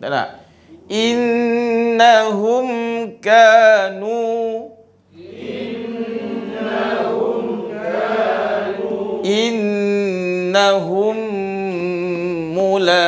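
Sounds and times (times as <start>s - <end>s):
man's voice chanting: 0.0s - 5.3s, 9.2s - 13.0s
students reciting in unison: 5.1s - 10.4s.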